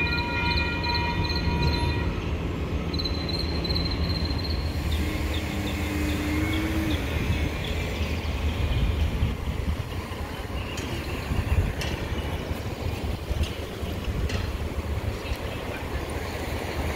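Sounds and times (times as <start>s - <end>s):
crossing warning bell pinging: 0.0s - 7.7s.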